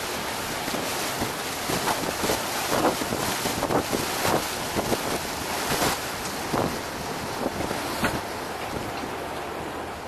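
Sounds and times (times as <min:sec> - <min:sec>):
wind on microphone: 0:00.0 - 0:09.1
water splashing against boat hull: 0:00.0 - 0:10.0.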